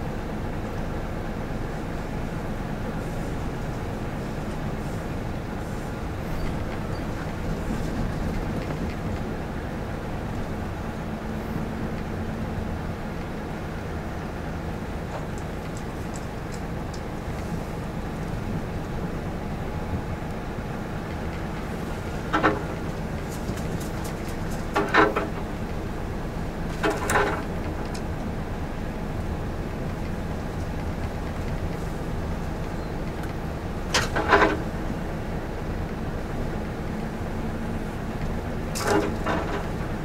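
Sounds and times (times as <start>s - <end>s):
road noise: 0.0s - 40.0s.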